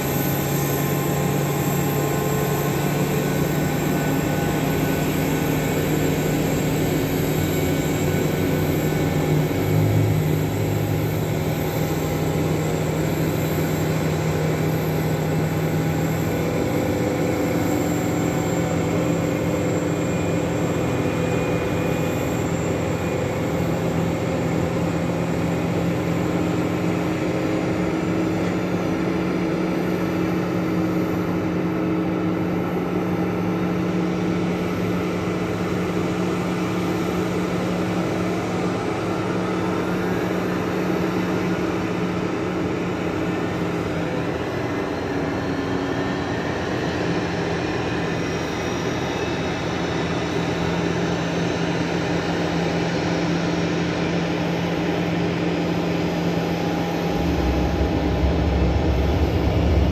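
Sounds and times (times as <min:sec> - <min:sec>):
jet engine whine and hum: 0:00.0 - 0:59.9.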